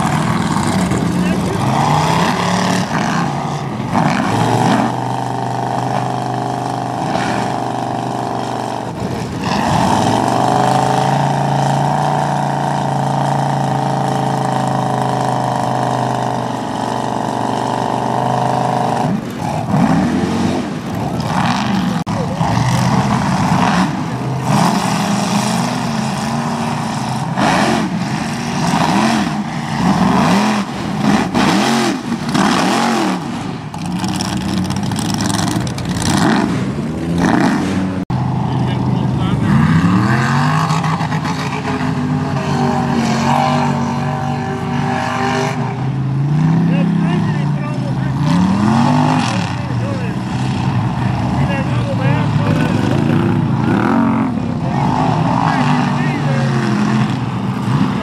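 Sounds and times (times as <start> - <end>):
truck engine revving: 0.0 - 58.0.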